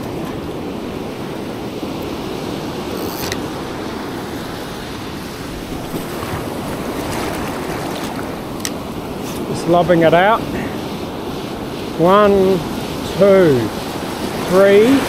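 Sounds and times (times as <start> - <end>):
ocean surf washing: 0.0 - 15.0
wind buffeting microphone: 0.0 - 15.0.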